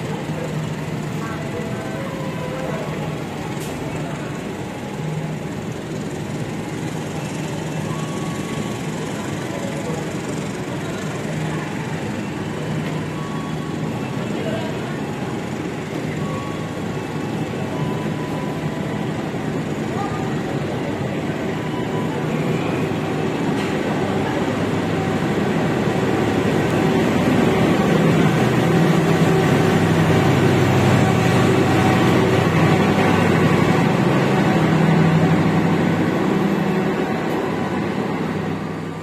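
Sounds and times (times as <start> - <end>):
train wheels on rails: 0.0 - 39.0.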